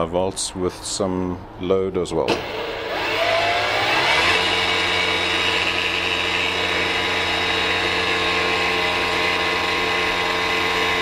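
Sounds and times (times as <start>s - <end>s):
cloth braking spinning motor: 2.3s - 11.0s
electric motor high whine: 2.3s - 11.0s.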